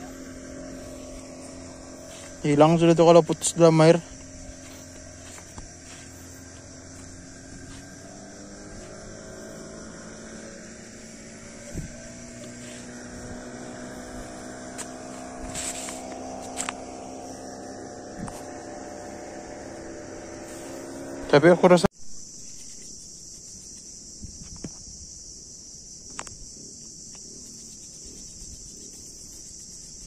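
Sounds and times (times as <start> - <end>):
distant motor droning: 0.0 - 21.9
crickets chirring: 0.0 - 30.0.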